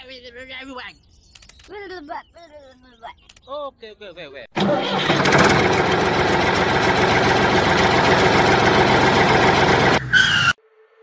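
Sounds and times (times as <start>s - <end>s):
diesel tractor engine idling: 4.6s - 10.0s.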